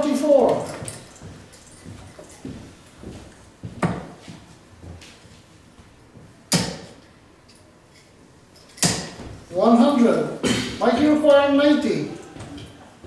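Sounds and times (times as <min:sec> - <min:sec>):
darts thudding into dartboard: 0:06.5 - 0:07.0, 0:08.8 - 0:09.4.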